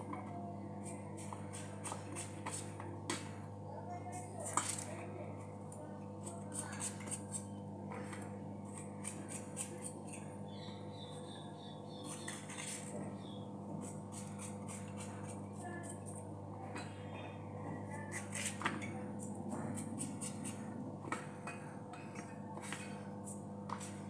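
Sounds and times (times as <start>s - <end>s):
steady low hum: 0.0s - 24.0s
knife cutting vegetable: 0.8s - 3.2s, 6.2s - 10.3s, 13.7s - 16.3s, 17.9s - 21.2s.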